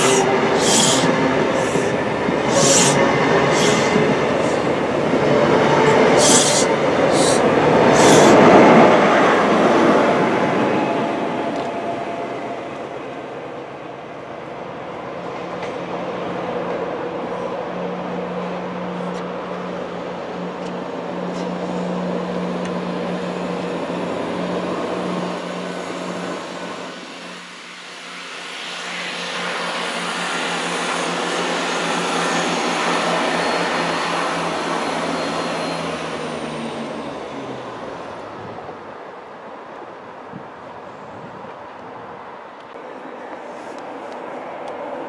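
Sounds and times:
broad rushing noise: 0.0s - 13.8s
diesel train engine hum: 0.0s - 45.0s.

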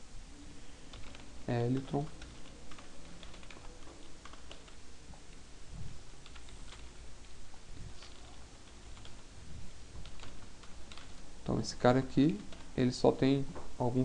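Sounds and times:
computer keyboard typing: 0.9s - 4.8s, 6.2s - 9.3s, 10.0s - 13.0s.

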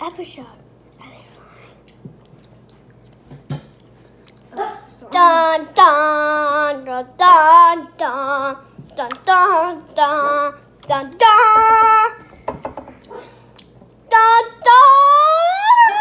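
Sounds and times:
girl singing high notes: 14.1s - 16.0s.

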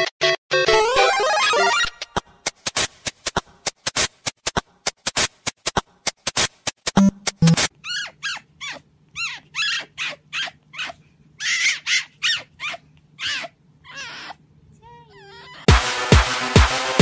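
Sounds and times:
sharp beats of music: 6.9s - 7.7s, 15.7s - 17.0s
fox squeaky calls: 7.7s - 14.4s.

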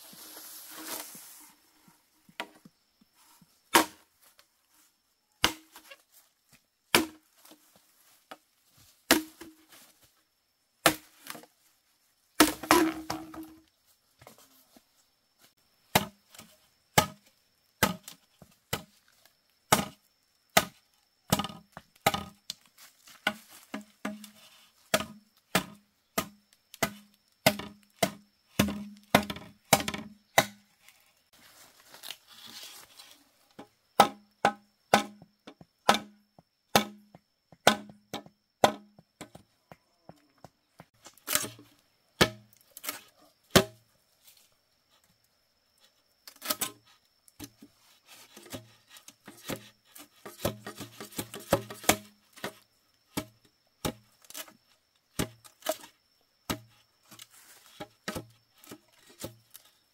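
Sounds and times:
blade chopping wood: 6.9s - 7.2s, 9.1s - 9.6s, 10.8s - 11.4s, 12.4s - 13.6s, 15.9s - 16.4s, 19.7s - 20.0s, 20.6s - 22.4s, 24.9s - 30.7s, 34.0s - 35.2s, 35.8s - 39.4s, 42.2s - 43.8s, 49.3s - 54.5s, 56.5s - 56.8s
wood splitting crunch: 12.4s - 13.6s, 24.9s - 31.0s, 48.2s - 54.6s.

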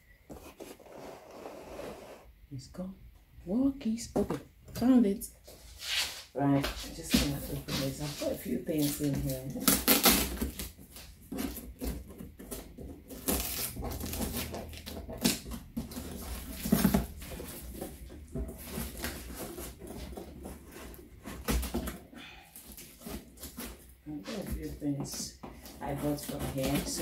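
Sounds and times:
scissors cutting packing tape: 9.5s - 10.7s, 11.3s - 17.6s.

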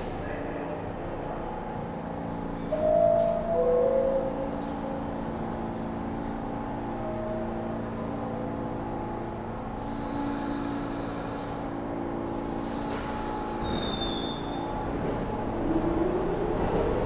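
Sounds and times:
subway train hum: 0.0s - 17.0s
brief high squeal: 13.6s - 14.7s.

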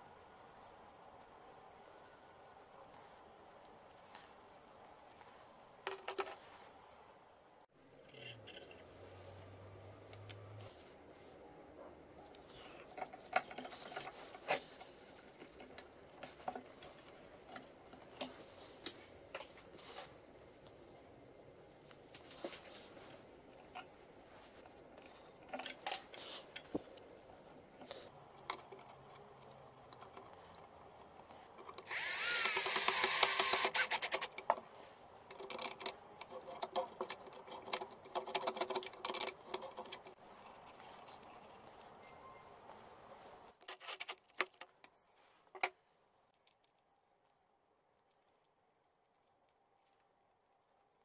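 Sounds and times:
small parts knocking and clicking: 31.6s - 40.2s
small electric motor whirring: 31.8s - 34.4s.

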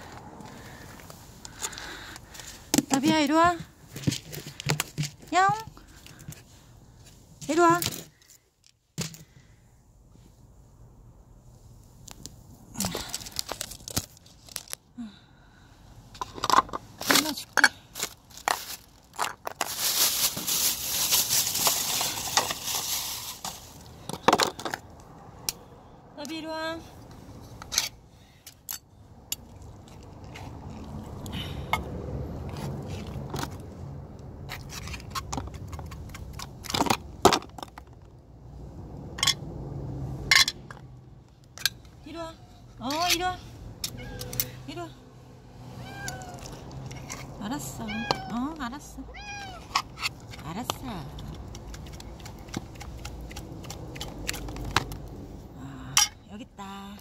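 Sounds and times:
crinkling and crunching handling: 0.0s - 9.4s, 12.0s - 14.9s, 16.2s - 25.1s, 49.4s - 55.4s
sharp clicks of hard objects: 49.7s - 55.2s.

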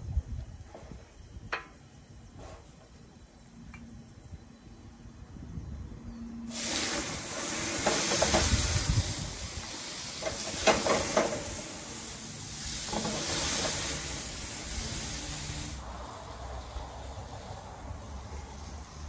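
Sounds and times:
meat sizzling in skillet: 6.5s - 16.0s.

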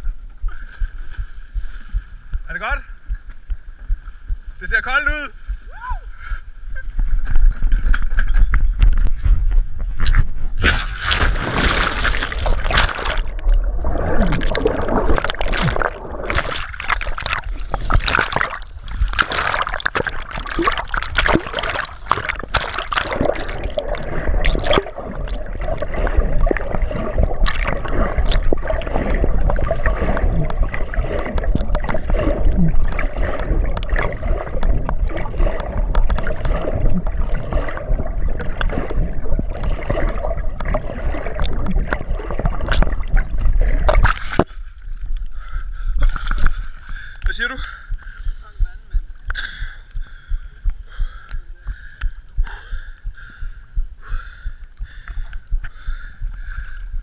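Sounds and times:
muffled water sloshing underwater: 0.0s - 4.6s, 5.3s - 57.0s
low rumble: 5.3s - 47.1s
bubbles: 10.0s - 45.2s.

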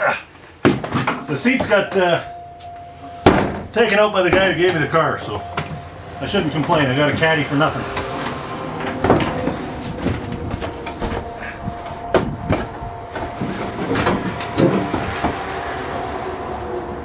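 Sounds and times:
sharp knocks and clunks: 0.6s - 2.2s, 3.2s - 5.9s, 8.0s - 15.5s
car engine idling: 1.2s - 17.0s.

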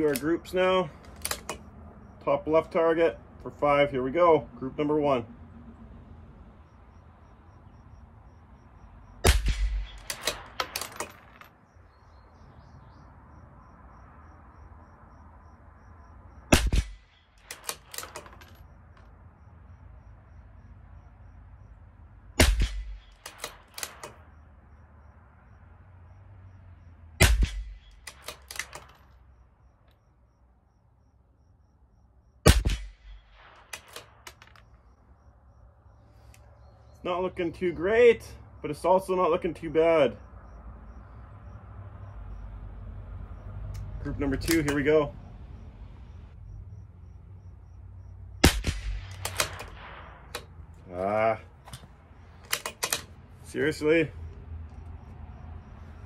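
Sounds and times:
rifle bolt metallic clicks: 0.0s - 1.7s, 9.3s - 11.6s, 16.6s - 19.1s, 22.4s - 24.2s, 27.2s - 29.2s, 32.5s - 34.7s, 43.7s - 44.9s, 48.4s - 50.8s, 51.6s - 53.2s
rifle shots: 9.2s - 11.5s, 16.5s - 18.3s, 22.4s - 24.3s, 27.2s - 29.0s, 32.4s - 34.5s, 48.4s - 50.7s.

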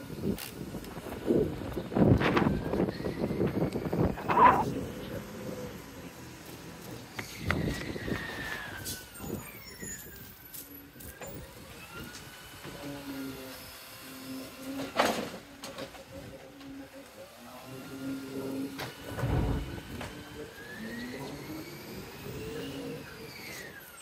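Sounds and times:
hydraulic arm humming: 0.0s - 24.0s
garbage truck brakes squealing: 7.3s - 11.4s
loud clatter of bin: 19.1s - 20.1s.

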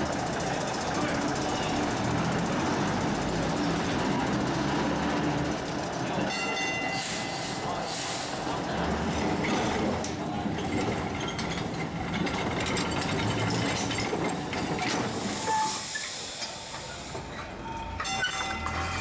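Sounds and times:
tram rumbling past: 0.0s - 19.0s
hiss: 7.0s - 8.4s, 15.0s - 17.2s.

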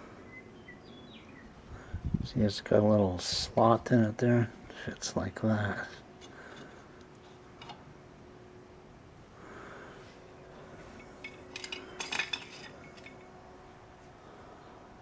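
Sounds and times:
metal parts clinking: 11.0s - 13.3s.

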